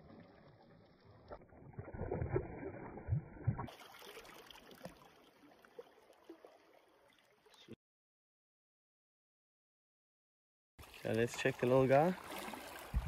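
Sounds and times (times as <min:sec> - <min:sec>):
water lapping over rocks: 0:10.8 - 0:13.0.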